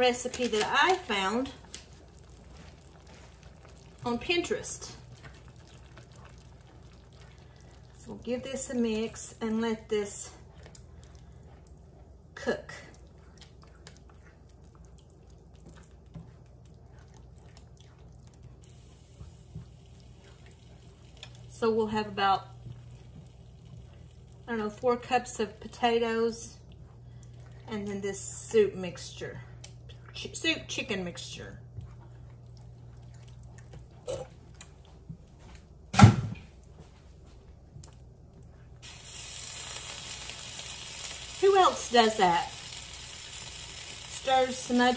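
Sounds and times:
low steady hum: 0.0s - 44.9s
spatula stirring thick sauce: 1.1s - 21.4s
sauce sizzling on hot stovetop: 18.6s - 25.7s, 38.8s - 44.9s.

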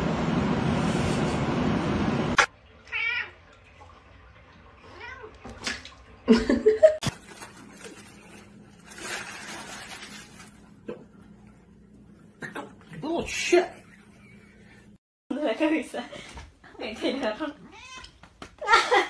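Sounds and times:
plastic snack bag crinkling: 7.1s - 10.8s.

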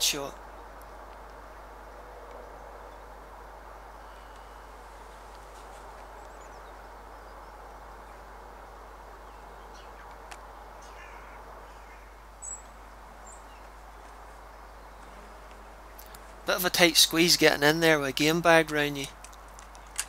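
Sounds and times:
faint bird calls: 0.0s - 16.6s
steady low hiss: 0.0s - 20.0s.

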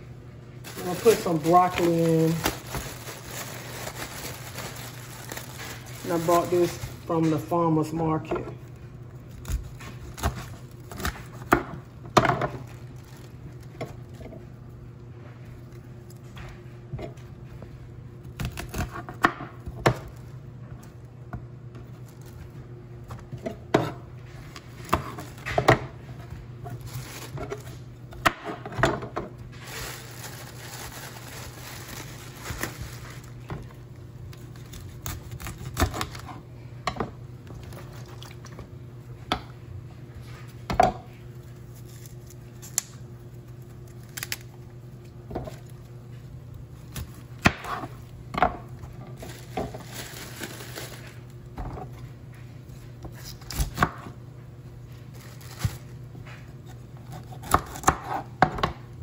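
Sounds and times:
plastic wrap rustling: 0.6s - 16.4s, 21.8s - 23.2s, 24.3s - 28.0s, 29.4s - 36.4s, 40.3s - 44.9s, 45.5s - 53.6s, 54.8s - 56.6s.

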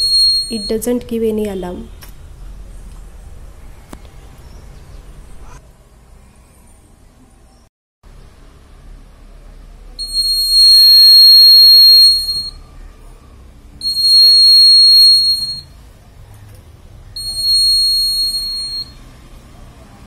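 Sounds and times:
high-pitched buzzer tone: 0.0s - 0.9s, 10.0s - 12.6s, 13.8s - 15.7s, 17.2s - 19.0s.

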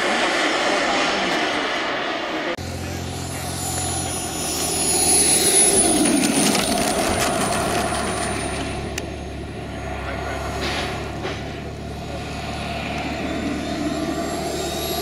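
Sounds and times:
model jet turbine whining: 0.0s - 15.0s.

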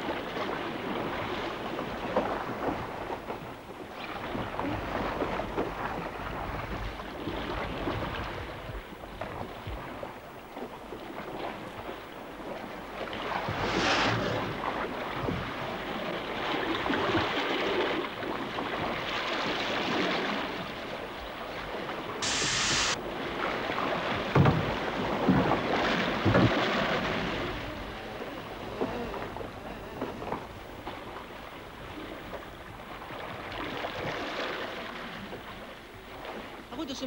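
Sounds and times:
waves slapping against boat: 0.0s - 37.0s
burst of hiss: 13.5s - 14.5s, 22.2s - 23.0s.

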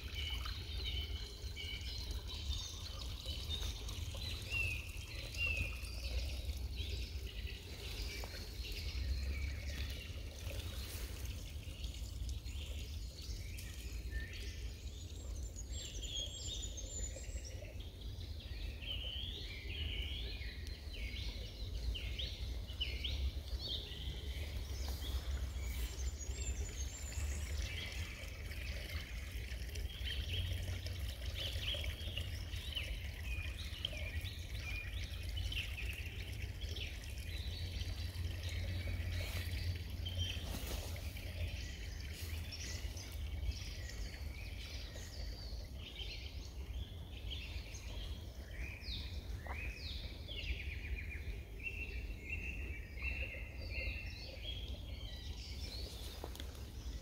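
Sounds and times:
songbirds chirping and whistling: 12.6s - 57.0s.

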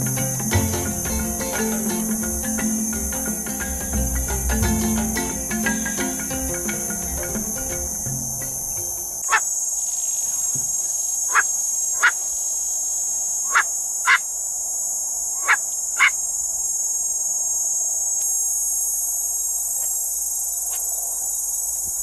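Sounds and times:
high insect buzz: 0.0s - 22.0s.

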